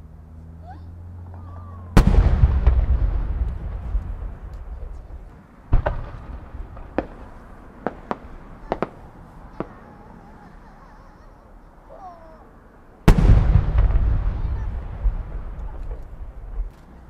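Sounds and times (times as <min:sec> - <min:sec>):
firework burst rumble: 0:01.7 - 0:10.3, 0:13.0 - 0:16.7
firework pops and cracks: 0:02.0 - 0:09.8.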